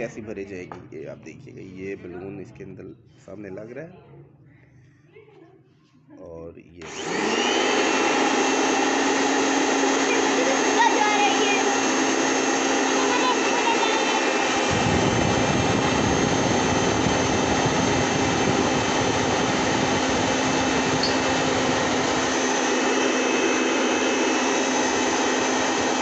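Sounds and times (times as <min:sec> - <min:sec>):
electric air blower whining: 0:06.8 - 0:26.0.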